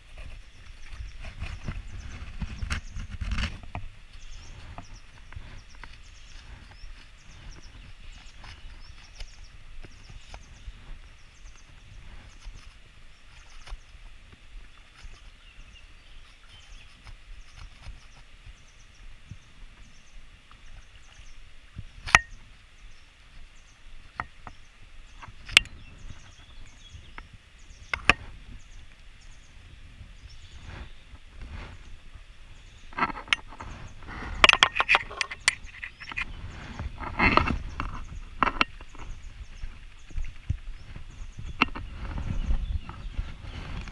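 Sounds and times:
fishing gear clicking and rustling: 32.9s - 42.4s.

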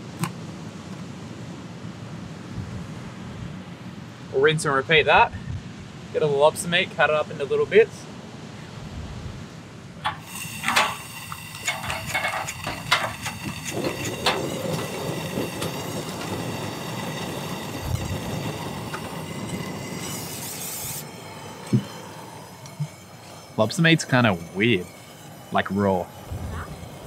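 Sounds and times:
gas burner hissing: 10.0s - 27.0s.

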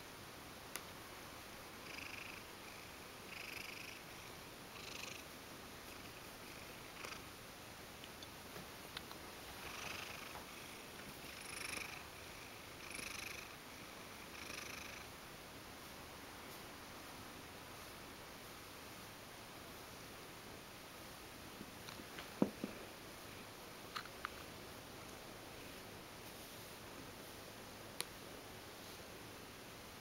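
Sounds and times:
cat purring: 1.7s - 7.3s, 9.5s - 15.1s.

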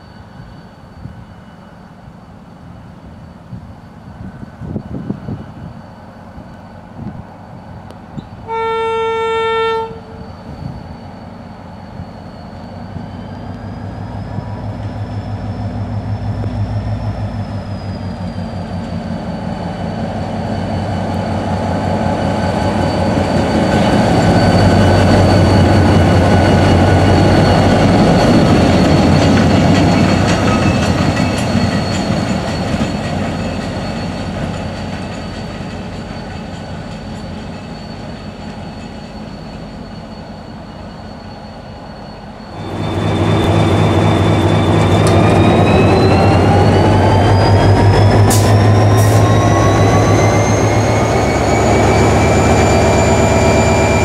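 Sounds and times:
diesel locomotive engine: 0.0s - 54.0s
train wheels rumbling on rails: 0.0s - 54.0s
locomotive horn blast: 8.4s - 10.2s.

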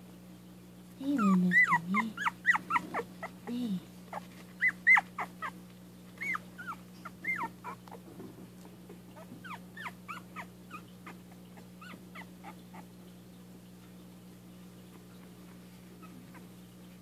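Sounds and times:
puppies squeaking and whimpering: 1.1s - 5.6s, 6.2s - 8.0s, 8.8s - 12.9s, 14.8s - 16.9s.

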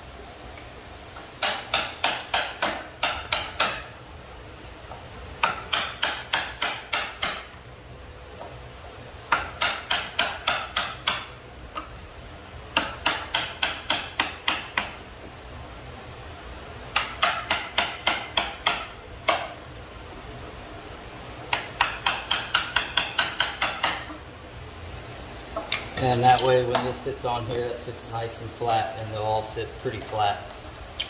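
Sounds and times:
hammer striking wood chisel: 1.3s - 4.0s, 5.4s - 7.6s, 9.3s - 11.9s, 12.7s - 15.0s, 16.9s - 19.6s, 21.5s - 24.2s.

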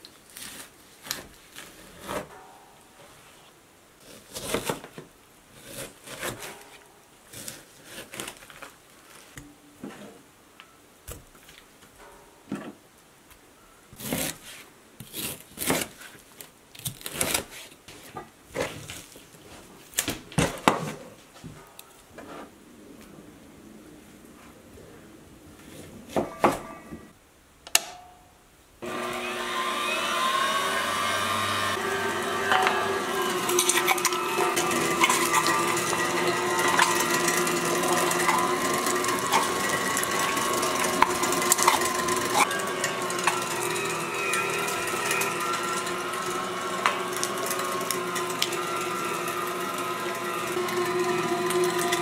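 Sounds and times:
meat grinder motor whining: 28.8s - 52.0s.

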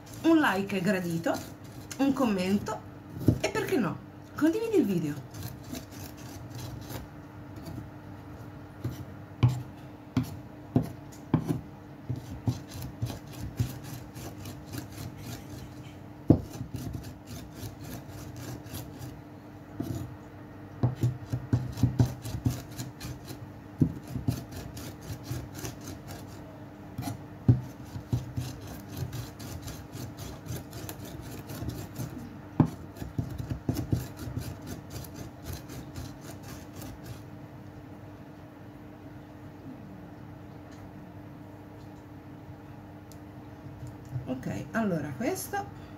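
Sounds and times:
blade chopping on wooden board: 16.3s - 18.9s, 20.8s - 26.3s, 27.0s - 37.0s.

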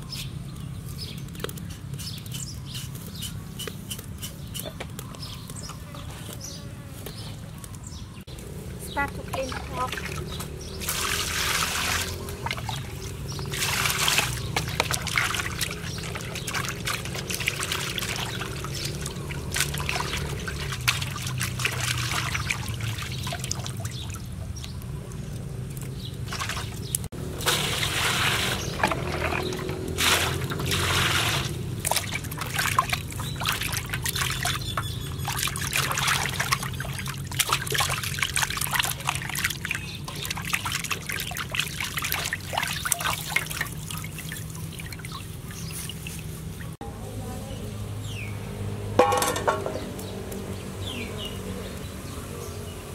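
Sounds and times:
water splashing in a metal basin: 8.9s - 46.8s, 48.4s - 51.6s.

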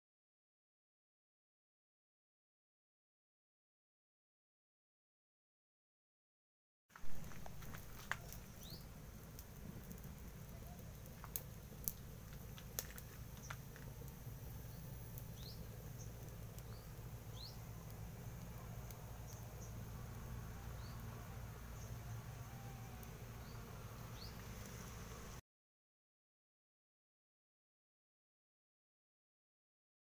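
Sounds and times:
firewood crackling: 6.9s - 25.4s
low steady rumble: 7.0s - 25.4s
faint high chirps: 14.4s - 24.8s.

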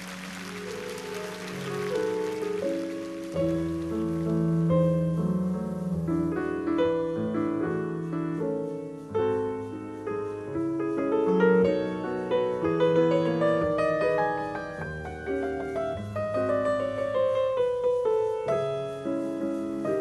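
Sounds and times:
solo classical piano: 0.0s - 20.0s.

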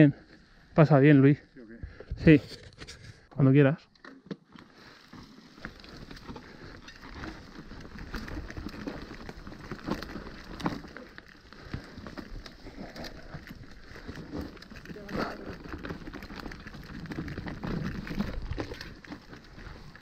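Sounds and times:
tyres crunching over stones: 4.4s - 20.0s
bike knocks and rattles: 5.5s - 12.4s, 13.2s - 20.0s.

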